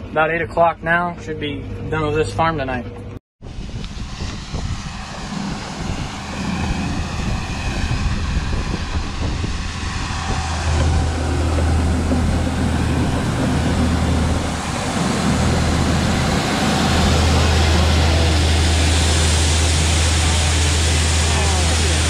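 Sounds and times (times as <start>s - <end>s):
tractor engine running: 3.9s - 22.0s.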